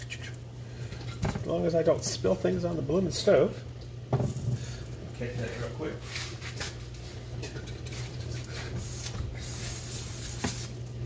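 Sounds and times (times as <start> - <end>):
cloth rubbing glass cooktop: 6.0 - 10.8.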